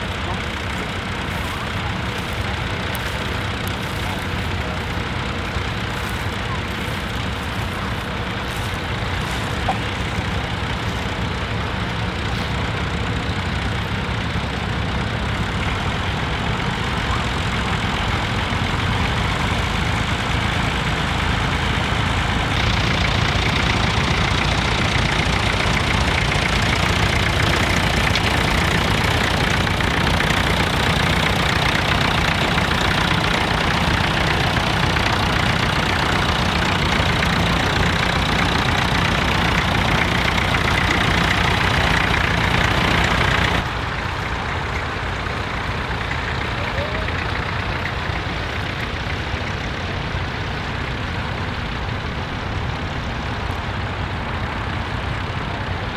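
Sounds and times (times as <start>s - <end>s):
tractor engines running: 0.0s - 55.9s.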